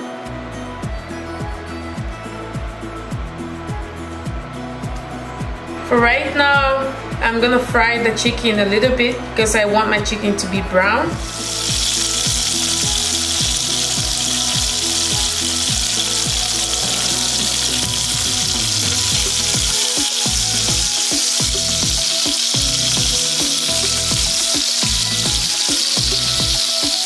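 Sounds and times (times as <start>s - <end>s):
background music with steady beat: 0.0s - 27.0s
chicken sizzling in hot oil: 11.2s - 27.0s.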